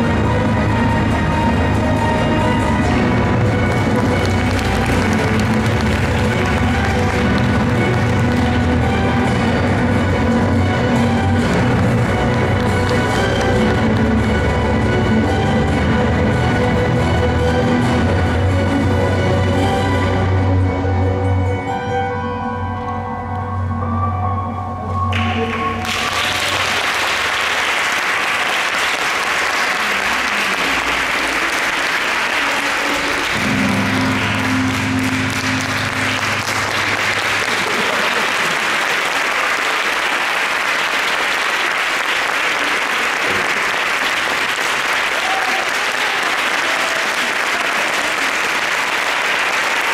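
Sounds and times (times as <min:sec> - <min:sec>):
music: 0:00.0 - 0:49.9
audience applause: 0:03.5 - 0:09.5, 0:11.4 - 0:14.4, 0:25.2 - 0:49.9.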